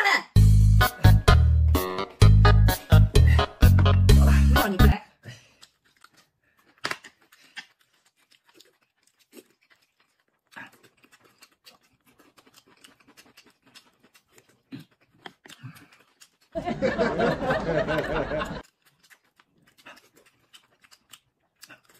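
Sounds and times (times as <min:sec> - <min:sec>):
background music: 0:00.4 - 0:05.0
chewing and mouth noises: 0:02.7 - 0:16.6, 0:18.6 - 0:21.9.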